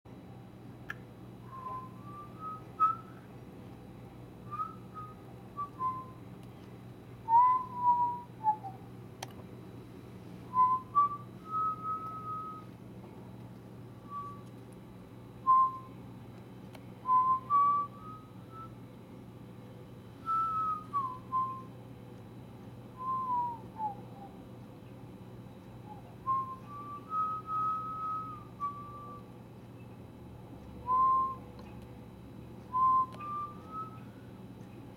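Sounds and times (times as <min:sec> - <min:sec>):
steady low hum: 0:00.1 - 0:34.9
person whistling a tune: 0:01.5 - 0:03.2, 0:04.5 - 0:06.2, 0:07.3 - 0:08.8, 0:10.5 - 0:12.7, 0:14.0 - 0:14.5, 0:15.5 - 0:15.9, 0:17.0 - 0:18.8, 0:20.2 - 0:21.7, 0:23.0 - 0:24.4, 0:25.8 - 0:29.2, 0:30.8 - 0:31.5, 0:32.7 - 0:34.1.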